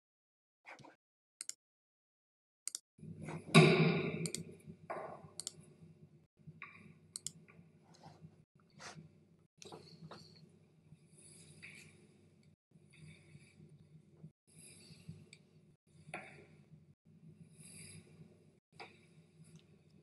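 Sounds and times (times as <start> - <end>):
sharp mouse clicks: 5.4 - 5.6.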